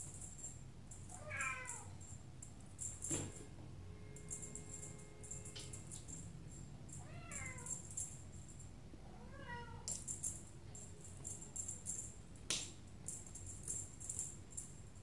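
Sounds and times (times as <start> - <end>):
jingle bell shaken: 4.2 - 8.8, 9.9 - 12.4, 13.0 - 15.0.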